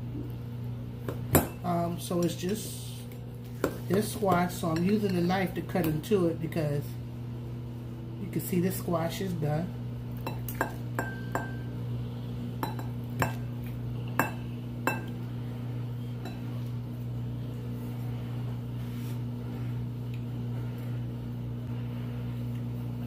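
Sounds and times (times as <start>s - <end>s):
steady low hum: 0.0s - 23.0s
knife clinking on ceramic bowl: 10.2s - 11.7s.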